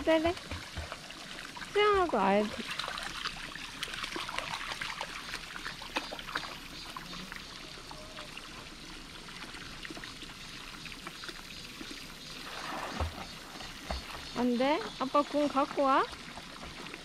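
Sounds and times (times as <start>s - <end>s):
dog paws splashing in water: 0.0s - 7.2s, 12.7s - 17.0s
water trickling from a hose: 0.0s - 17.0s.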